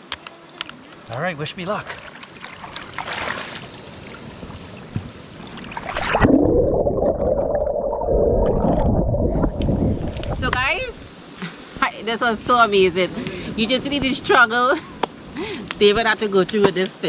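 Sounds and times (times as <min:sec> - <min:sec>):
water sloshing: 0:00.4 - 0:11.1
microphone splashing into river: 0:01.8 - 0:11.0
underwater rushing and bubbling: 0:02.0 - 0:11.1.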